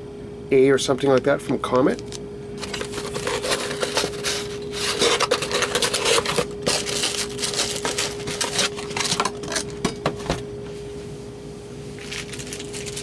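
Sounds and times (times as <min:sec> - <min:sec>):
steady hum: 0:00.0 - 0:13.0
cardboard box rustling and scraping: 0:02.6 - 0:09.6.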